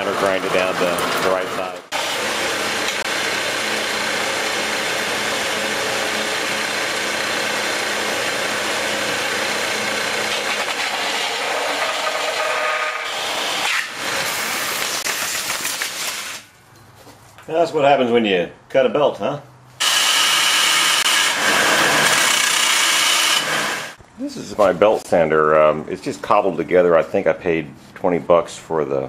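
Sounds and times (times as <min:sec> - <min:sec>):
belt sander grinding metal: 0:00.0 - 0:15.0, 0:19.8 - 0:24.0.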